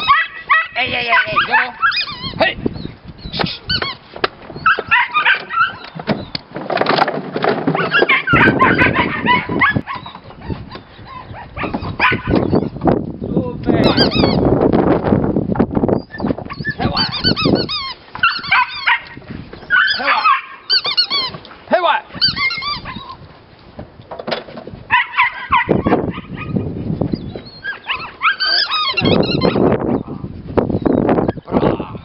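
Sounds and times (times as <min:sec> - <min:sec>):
puppy yelping and whining: 0:00.0 - 0:02.4, 0:03.2 - 0:06.3, 0:07.7 - 0:12.8, 0:13.8 - 0:14.4, 0:16.0 - 0:21.5, 0:22.1 - 0:23.2, 0:24.9 - 0:30.0.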